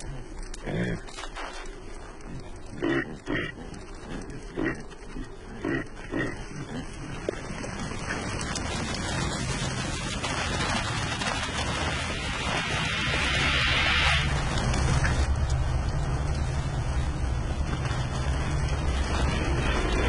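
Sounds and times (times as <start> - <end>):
caribou grunting: 0.0 - 9.3
steady noise: 9.4 - 20.0.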